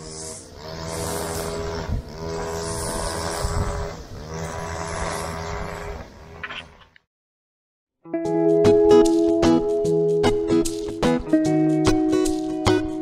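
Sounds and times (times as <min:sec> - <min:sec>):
engine droning: 0:00.0 - 0:06.9.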